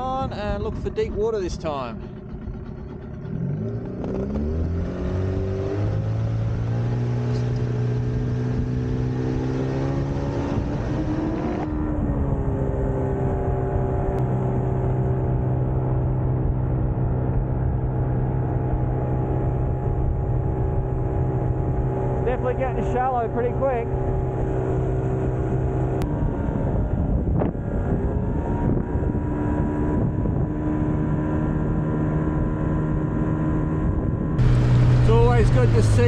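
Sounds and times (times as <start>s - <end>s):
outboard motor throttling up: 0.0s - 8.7s, 34.4s - 36.0s.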